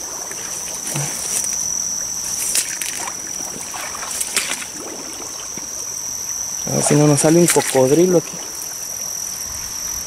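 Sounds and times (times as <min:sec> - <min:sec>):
insect chirring: 0:00.0 - 0:10.0
water splashes: 0:00.0 - 0:10.0
footsteps squelching through mud: 0:00.3 - 0:05.8, 0:06.8 - 0:08.2.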